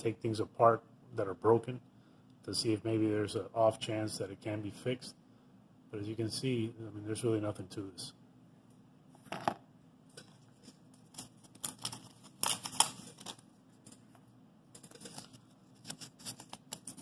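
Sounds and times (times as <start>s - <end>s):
hands handling plastic parts: 9.3s - 17.0s.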